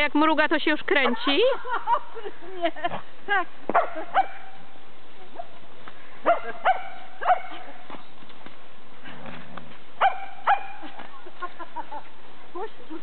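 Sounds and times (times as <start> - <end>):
dog barking: 3.7 - 4.6, 6.2 - 7.7, 10.0 - 10.8.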